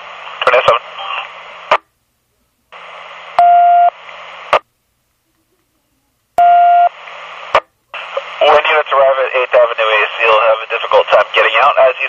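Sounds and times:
radio static hiss: 0:00.0 - 0:01.9, 0:02.7 - 0:04.7, 0:06.6 - 0:12.0
steady radio beep: 0:03.4 - 0:04.0, 0:06.4 - 0:07.0.

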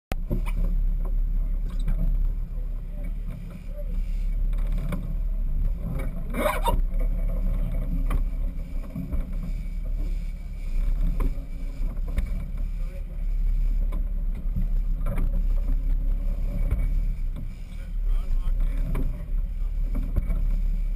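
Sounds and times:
boat engines rumbling: 0:00.1 - 0:20.9
water along the hull: 0:00.1 - 0:20.9.

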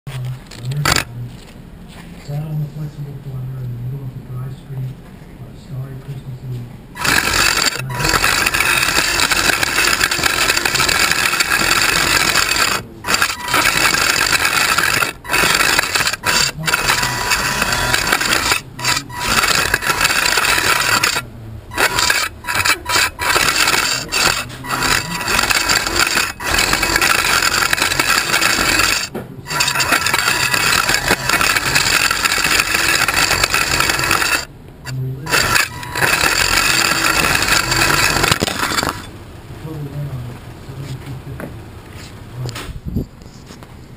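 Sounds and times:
robot drive motors running: 0:00.2 - 0:01.1, 0:07.0 - 0:39.1.

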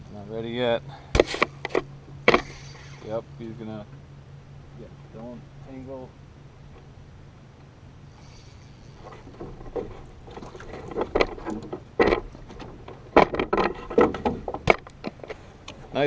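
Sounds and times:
fish thrashing and splashing: 0:09.0 - 0:11.6
knocks against boat hull: 0:09.4 - 0:14.9.

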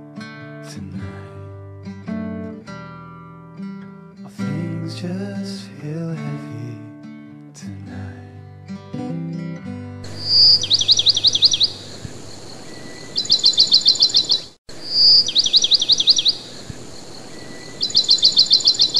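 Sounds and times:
guitar music: 0:00.0 - 0:14.3
bird song with whistle and trill: 0:10.1 - 0:18.9.

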